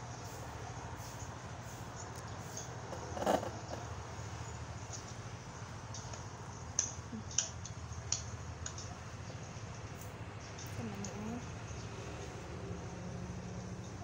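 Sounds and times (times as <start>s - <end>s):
light sharp clicks: 5.9s - 9.0s.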